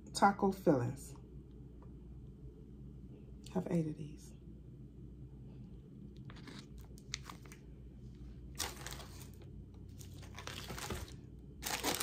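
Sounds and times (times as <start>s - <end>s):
plastic food packs crinkling: 6.3s - 7.6s, 8.5s - 12.0s.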